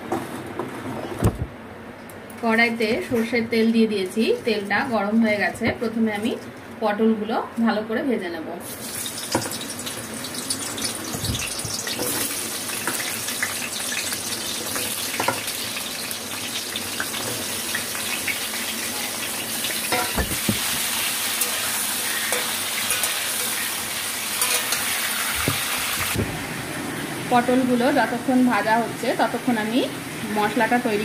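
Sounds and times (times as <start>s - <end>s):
vegetables sizzling in hot oil: 8.6s - 31.0s
metal spatula knocking pan: 19.9s - 20.8s.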